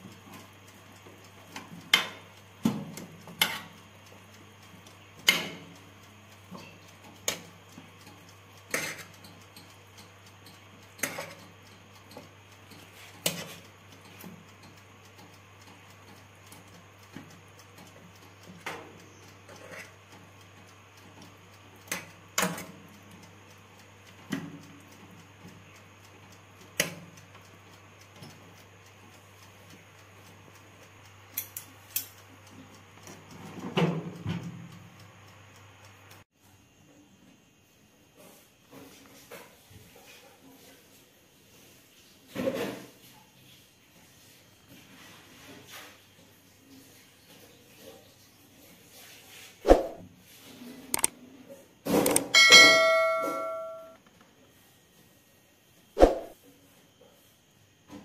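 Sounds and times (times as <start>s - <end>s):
tongs clinking on a baking tray: 1.4s - 4.2s, 6.4s - 17.8s, 18.6s - 20.4s, 52.3s - 54.0s
low steady hum: 52.4s - 54.0s.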